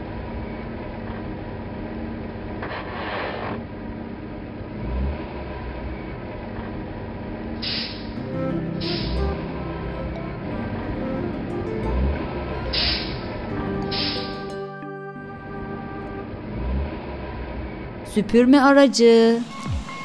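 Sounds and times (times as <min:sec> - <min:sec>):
cartoon truck engine humming: 0:03.7 - 0:18.1
short hissing: 0:07.6 - 0:08.2, 0:12.7 - 0:13.2.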